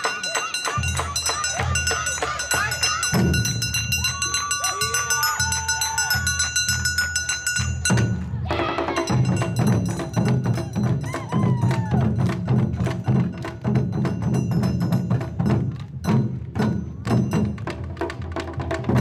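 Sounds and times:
dancers shouting calls: 0.0s - 6.4s, 8.4s - 9.5s
barrel drums beaten in rhythm: 0.0s - 19.0s.

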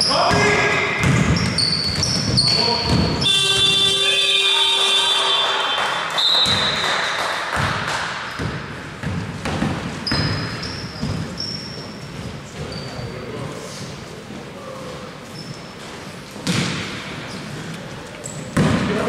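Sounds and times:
sneakers squeaking: 0.0s - 4.6s, 6.2s - 19.0s
basketball bouncing on court: 0.1s - 3.9s, 6.4s - 6.9s, 7.5s - 12.7s, 16.4s - 17.1s, 18.3s - 19.0s
electronic buzzer: 3.2s - 5.8s.

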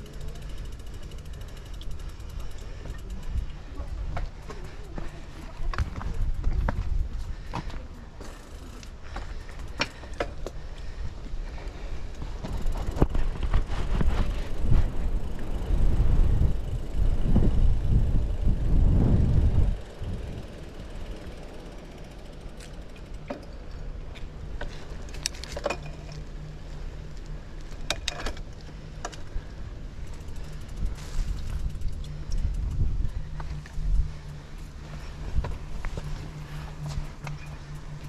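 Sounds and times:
bicycle clicks: 0.0s - 38.0s
low hum: 0.0s - 38.0s
wind rumble on microphone: 2.9s - 7.8s, 10.9s - 21.2s, 29.0s - 38.0s.

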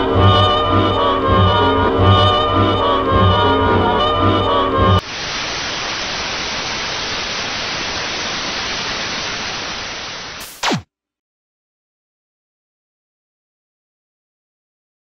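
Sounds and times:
music: 0.0s - 5.0s
television static hiss: 5.0s - 10.8s.

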